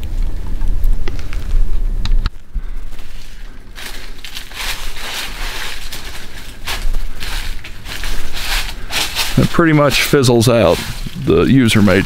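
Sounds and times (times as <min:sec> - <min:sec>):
low rumble on microphone: 0:00.0 - 0:12.0
footsteps crunching through dry leaves: 0:02.7 - 0:12.0.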